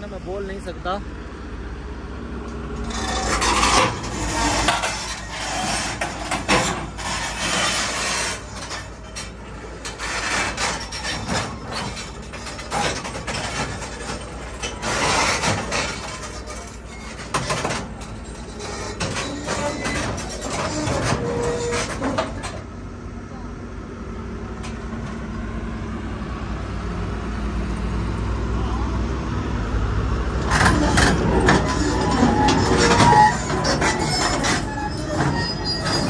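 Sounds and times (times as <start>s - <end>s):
diesel engine under load: 0.0s - 36.0s
steel tracks clanking on ramps: 2.4s - 22.8s, 24.6s - 25.4s, 30.3s - 36.0s.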